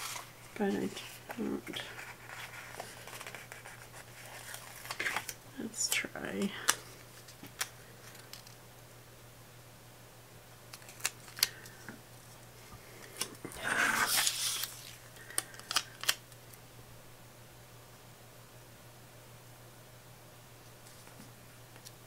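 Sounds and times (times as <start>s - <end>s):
paper rustling and sliding: 0.0s - 5.4s, 13.8s - 16.1s.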